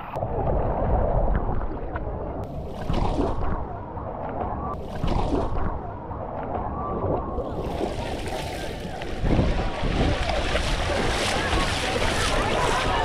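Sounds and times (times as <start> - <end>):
water splashing: 0.0 - 13.0
wind buffeting microphone: 0.2 - 13.0
water running down slide: 7.7 - 13.0.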